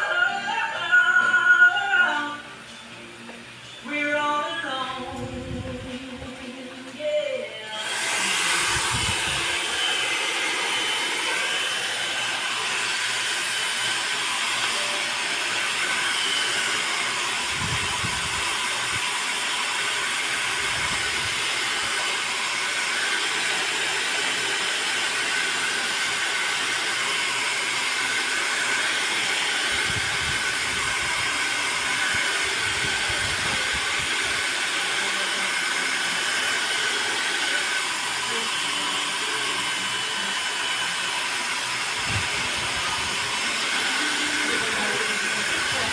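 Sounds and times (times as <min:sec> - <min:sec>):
hair dryer blowing: 0:00.0 - 0:45.9.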